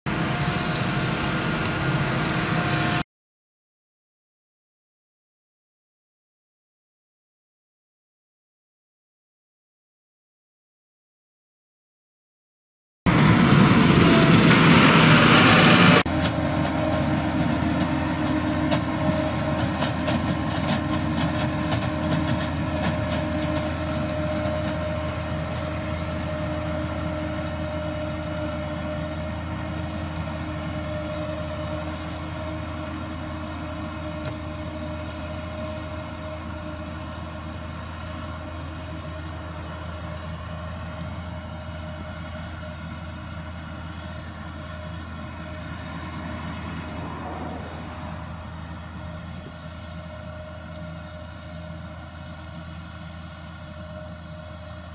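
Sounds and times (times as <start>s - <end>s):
harvester engine drone: 0.1s - 3.0s, 13.1s - 54.9s
loud harsh noise: 13.1s - 20.8s.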